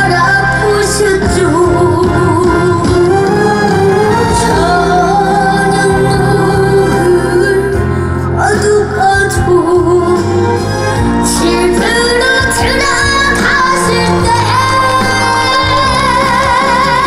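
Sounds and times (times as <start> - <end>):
instrumental accompaniment: 0.0 - 17.0
person singing long notes: 0.6 - 10.0.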